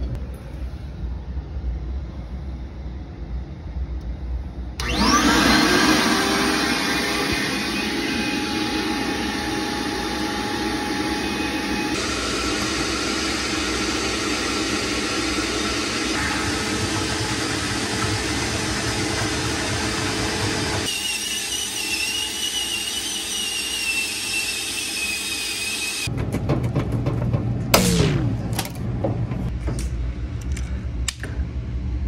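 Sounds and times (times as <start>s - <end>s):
wet dry vacuum running: 4.8s - 29.5s.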